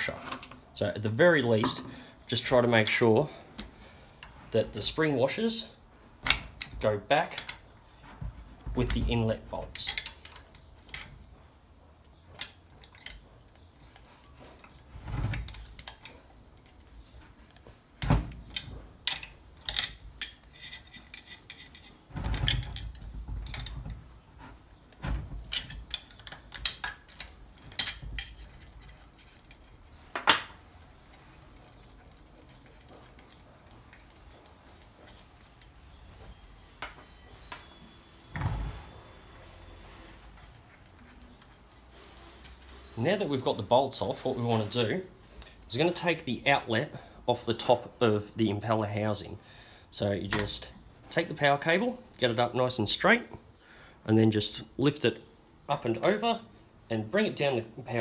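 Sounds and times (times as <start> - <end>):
spanner clicking on metal bolts: 6.2 - 7.6, 9.6 - 11.3, 12.3 - 23.8, 25.4 - 35.8.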